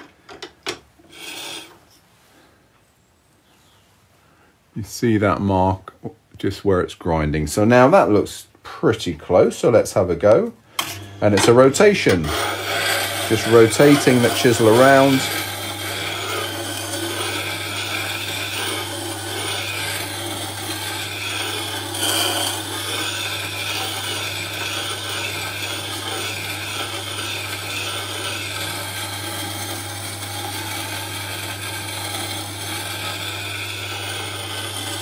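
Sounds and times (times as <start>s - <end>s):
steel grinding on abrasive wheel: 1.1s - 1.8s, 10.8s - 35.0s
grinder motor hum: 10.8s - 35.0s.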